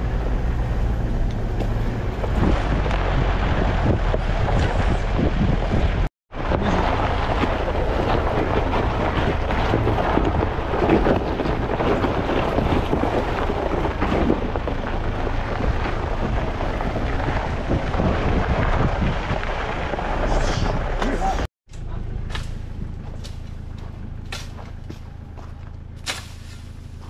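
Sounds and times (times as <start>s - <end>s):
wind buffeting microphone: 0.0s - 21.5s
vehicle engine and tyre rumble: 0.0s - 27.0s.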